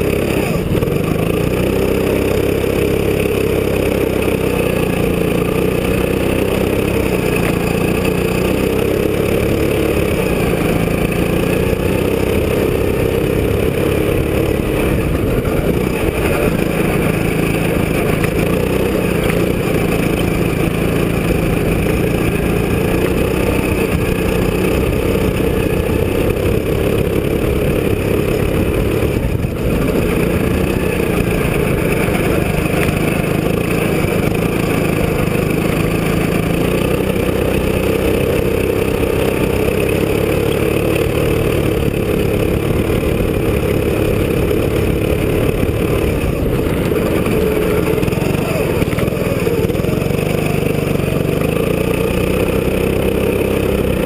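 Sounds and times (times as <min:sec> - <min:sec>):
go-kart engine running: 0:00.0 - 0:54.0.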